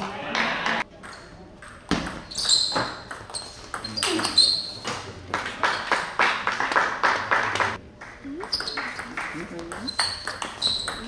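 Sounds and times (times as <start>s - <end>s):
people clapping: 0.0s - 0.8s, 5.2s - 9.9s.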